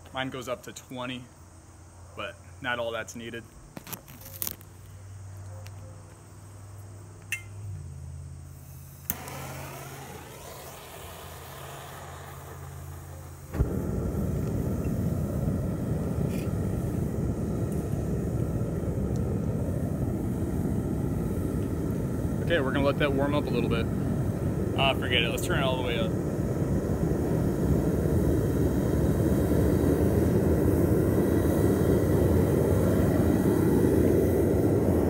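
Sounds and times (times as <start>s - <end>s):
burner lighting with a pop: 3.7s - 4.9s, 8.8s - 19.8s, 21.4s - 22.4s
gas hissing: 8.4s - 35.0s
loud rush of flame: 8.6s - 35.0s.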